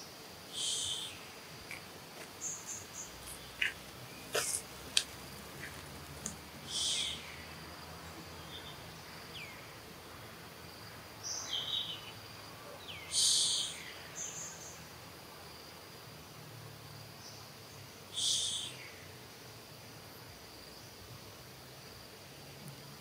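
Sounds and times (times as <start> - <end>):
high insect drone: 0.0 - 23.0
short high buzzing calls: 0.5 - 5.9, 6.6 - 7.3.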